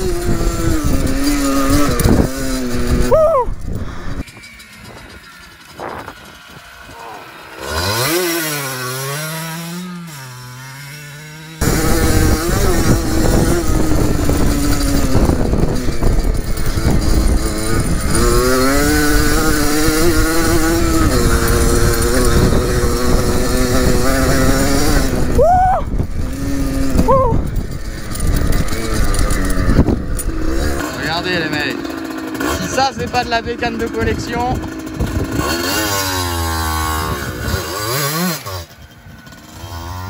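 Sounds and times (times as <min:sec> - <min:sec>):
wind on microphone: 0:00.0 - 0:07.0, 0:11.6 - 0:30.8, 0:32.4 - 0:35.8
dirt bike engine revving: 0:00.0 - 0:40.0.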